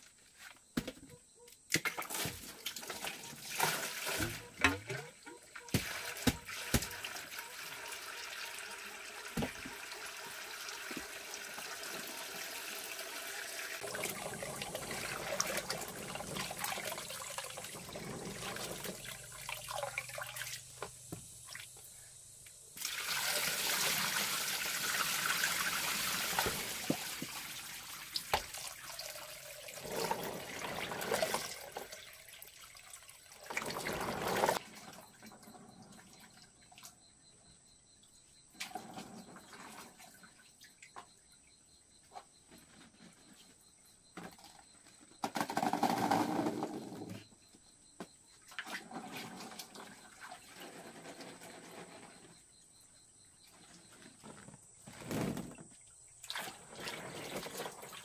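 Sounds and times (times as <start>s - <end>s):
water trickling and splashing: 1.8s - 21.9s, 22.8s - 37.0s, 55.4s - 58.0s.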